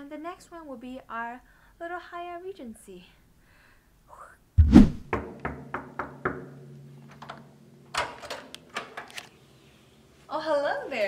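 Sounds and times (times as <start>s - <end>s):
heavy thud: 4.6s - 5.1s.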